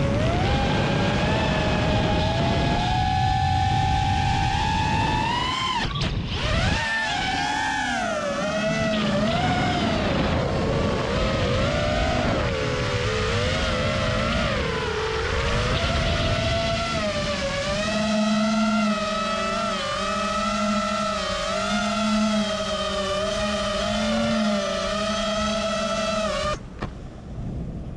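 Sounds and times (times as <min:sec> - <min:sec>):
drone motors whining: 0:00.0 - 0:27.0.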